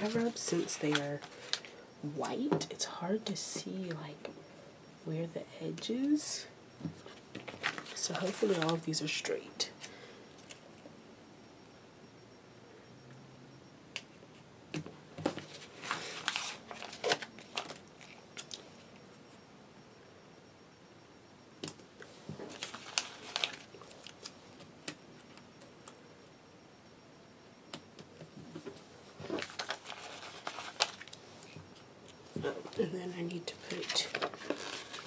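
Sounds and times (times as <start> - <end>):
paper rustling: 7.1 - 8.8, 15.4 - 17.8, 22.5 - 24.3, 29.2 - 31.2, 33.7 - 35.0.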